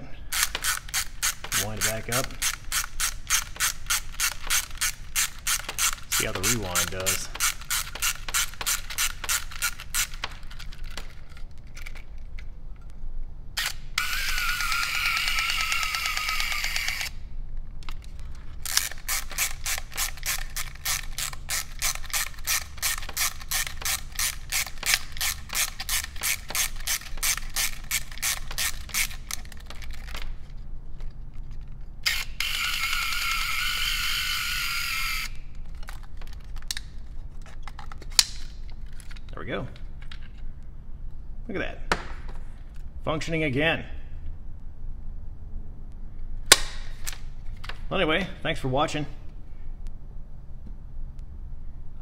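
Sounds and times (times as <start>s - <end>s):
spring motor whirring: 0.3s - 11.0s, 13.6s - 17.2s, 18.6s - 30.2s, 32.0s - 35.4s
clockwork ratchet winding clicks: 0.3s - 11.1s, 13.6s - 17.2s, 18.6s - 30.2s, 32.0s - 35.4s.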